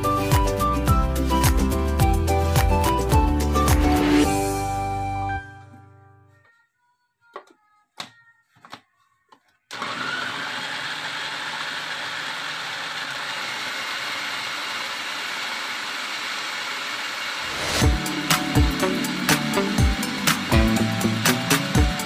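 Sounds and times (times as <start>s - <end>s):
food processor chopping: 9.7s - 22.0s.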